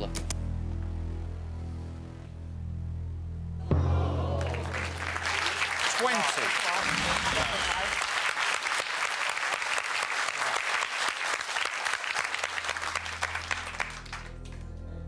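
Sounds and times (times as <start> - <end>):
audience applauding: 4.2 - 14.6.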